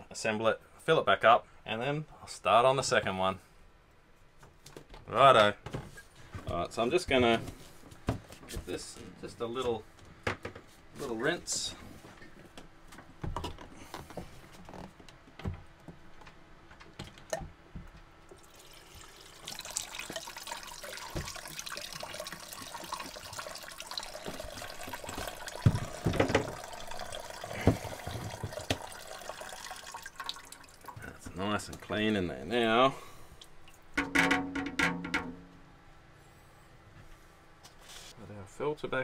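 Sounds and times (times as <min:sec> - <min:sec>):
fuel splashing and trickling: 0:18.3 - 0:31.4.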